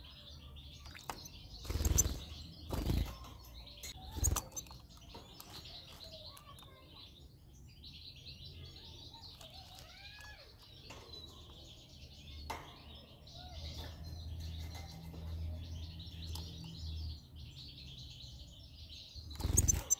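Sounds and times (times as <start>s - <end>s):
goldfinches twittering: 0.8s - 4.7s, 19.3s - 19.9s.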